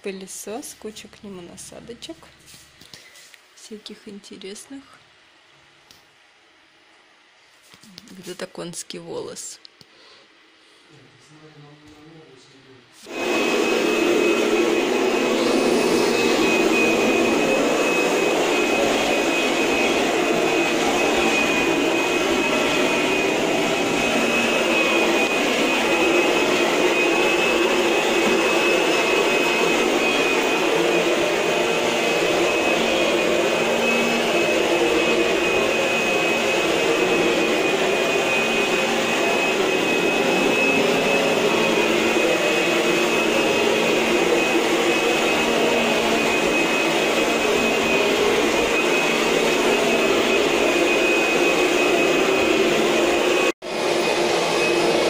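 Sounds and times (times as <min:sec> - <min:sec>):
vacuum cleaner running: 0:13.0 - 0:55.0.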